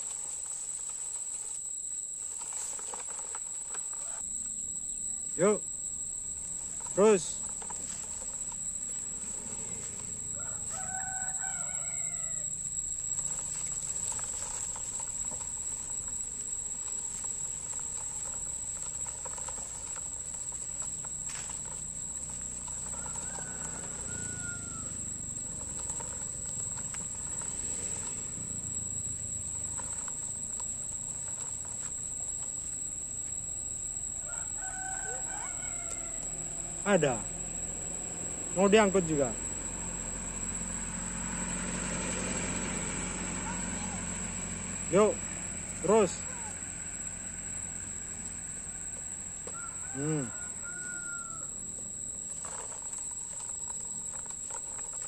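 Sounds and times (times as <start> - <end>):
toy truck wheels rolling on dirt: 0.0 - 4.7, 5.3 - 55.0
high insect drone: 0.0 - 55.0
rooster crowing: 6.7 - 15.3, 17.4 - 29.0, 34.1 - 40.5, 42.3 - 45.2, 45.8 - 53.6.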